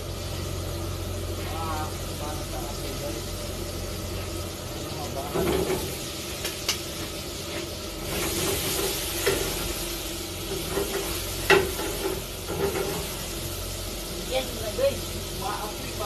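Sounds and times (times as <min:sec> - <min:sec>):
food sizzling in a pan: 0:00.0 - 0:16.0
pan flaring up: 0:00.0 - 0:16.0.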